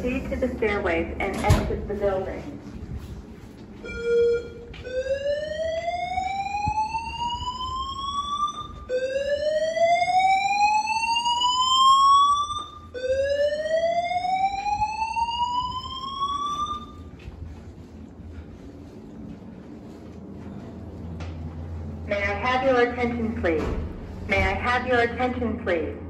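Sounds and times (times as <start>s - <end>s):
fire alarm whoop tone: 3.8s - 17.1s.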